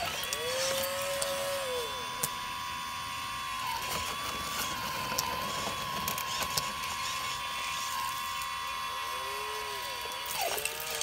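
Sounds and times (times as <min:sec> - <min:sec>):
model excavator motor whining: 0:00.0 - 0:11.0.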